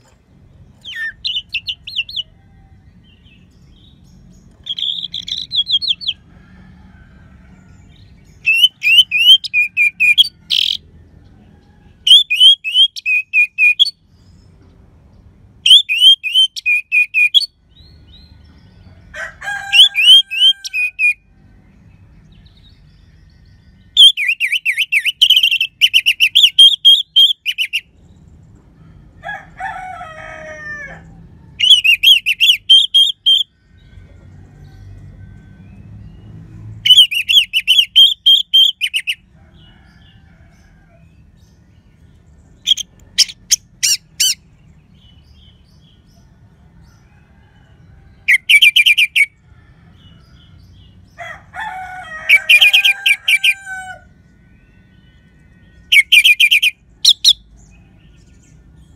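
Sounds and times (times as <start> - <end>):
lower-pitched bird notes: 54.6 - 57.6.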